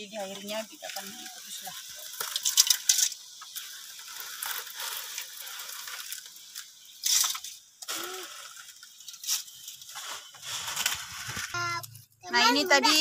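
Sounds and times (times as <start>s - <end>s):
dry noodles rustling and crackling: 0.0s - 13.0s.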